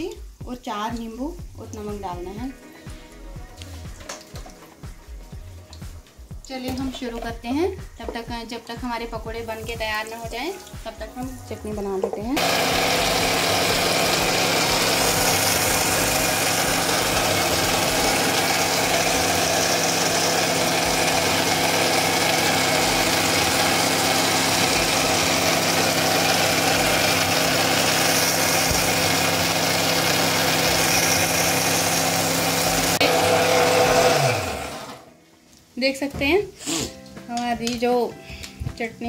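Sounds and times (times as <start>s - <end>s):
mixer grinder motor blending: 12.4s - 35.1s.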